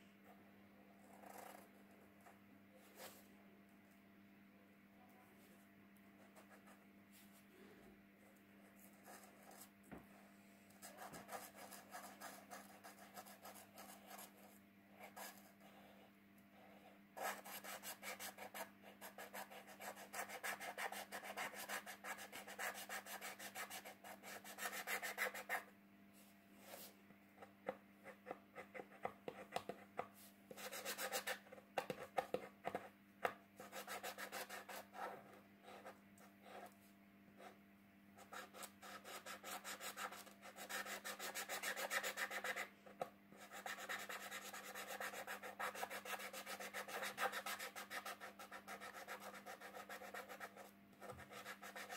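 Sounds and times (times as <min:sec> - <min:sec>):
marker scratching on paper: 0:01.1 - 0:01.6, 0:10.8 - 0:16.0, 0:16.6 - 0:25.7, 0:30.5 - 0:32.9, 0:33.6 - 0:36.8, 0:38.2 - 0:42.7, 0:43.4 - 0:51.9.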